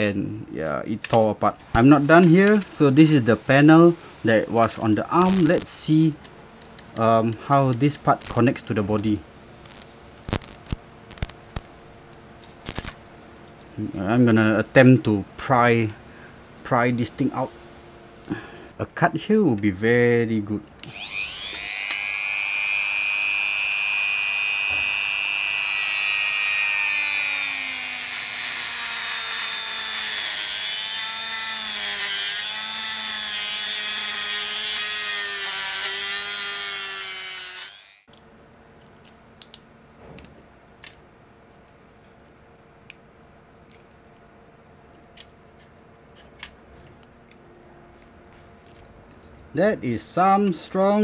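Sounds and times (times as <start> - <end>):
rotary tool cutting plastic: 5.2 - 5.7, 9.7 - 11.4, 12.6 - 13.0, 20.8 - 38.1.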